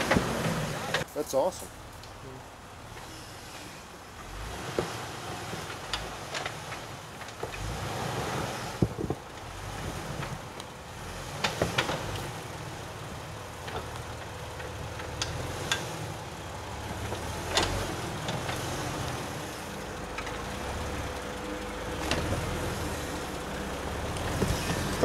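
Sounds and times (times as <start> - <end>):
car engine running: 8.6 - 25.0.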